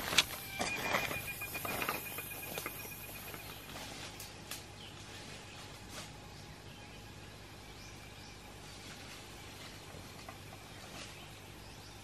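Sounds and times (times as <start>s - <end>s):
footsteps crunching dry leaves: 0.0s - 4.4s
forest background: 0.0s - 12.0s
thin high tone: 0.1s - 4.1s.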